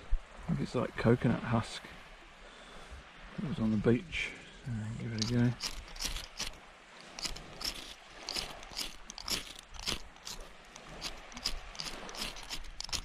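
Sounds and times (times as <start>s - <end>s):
flint striker scraping rod: 5.0s - 13.0s.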